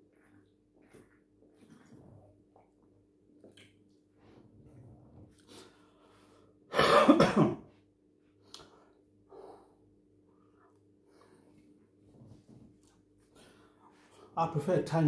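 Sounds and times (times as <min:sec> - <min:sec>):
man coughing: 0:06.7 - 0:07.7.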